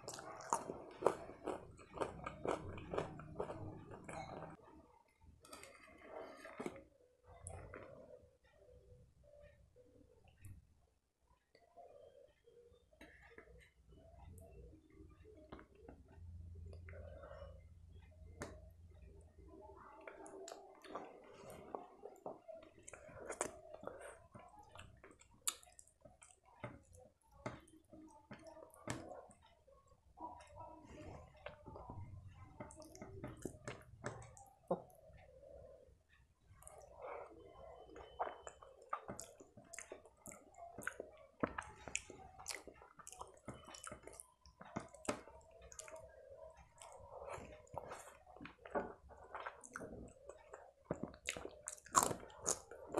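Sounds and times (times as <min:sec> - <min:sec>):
wet chewing sounds: 0:00.0 - 0:04.6, 0:19.9 - 0:29.4, 0:36.5 - 0:52.9
fingers mixing rice on a plate: 0:13.0 - 0:52.9.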